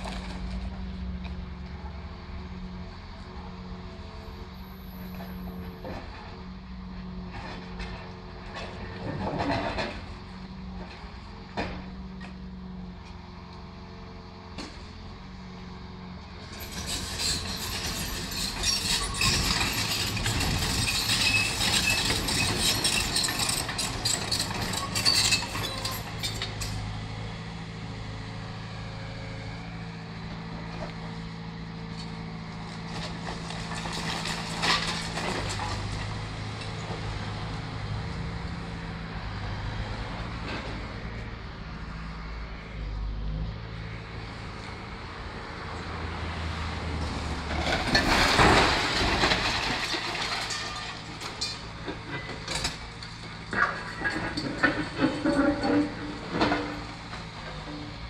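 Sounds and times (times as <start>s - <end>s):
excavator diesel engine: 0.0s - 58.0s
rubble crashing and clattering: 7.6s - 10.3s, 16.6s - 26.6s, 32.8s - 36.3s, 47.4s - 57.8s.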